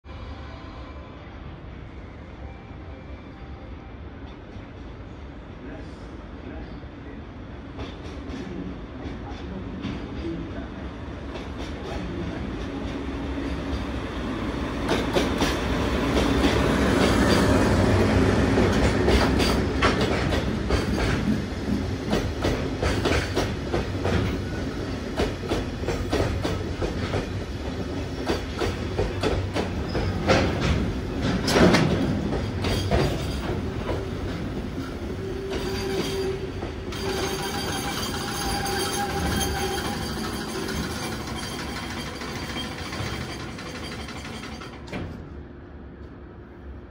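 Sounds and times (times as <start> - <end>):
diesel locomotive engine passing: 10.5 - 43.6.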